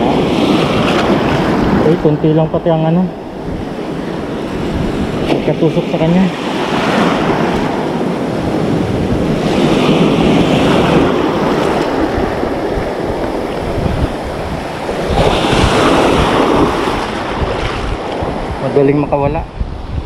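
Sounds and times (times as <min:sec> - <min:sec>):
surf washing over reef: 0:00.0 - 0:20.0
wind buffeting microphone: 0:00.0 - 0:20.0.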